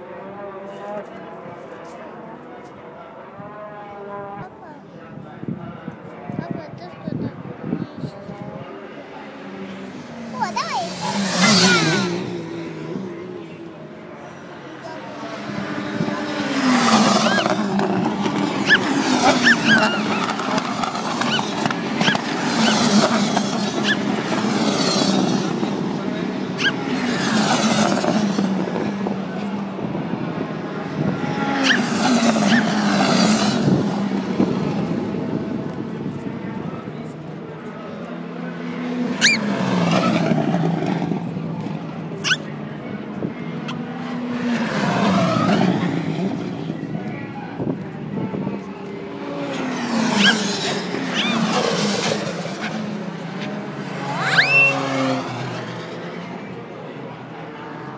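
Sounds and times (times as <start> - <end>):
racing car engine passing: 8.5 - 57.9
short high squeals: 18.6 - 20.4, 26.6 - 26.8, 39.2 - 39.5, 51.1 - 51.6, 54.1 - 54.9
rising and falling chirps: 54.2 - 54.8.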